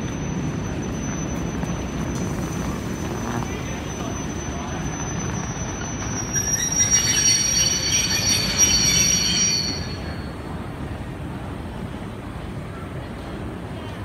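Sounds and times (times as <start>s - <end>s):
train wheels squealing: 0.0s - 10.6s.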